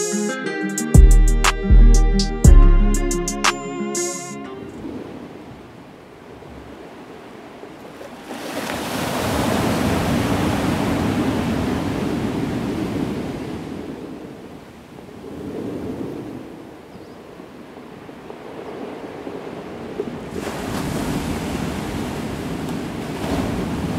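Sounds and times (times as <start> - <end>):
sea waves washing on beach: 4.6 - 23.9.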